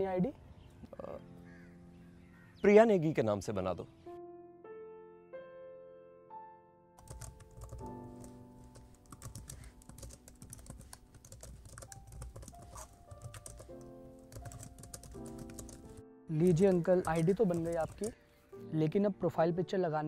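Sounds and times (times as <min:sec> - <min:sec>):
background music: 0:00.0 - 0:20.0
rapid laptop keyboard typing: 0:07.0 - 0:18.2.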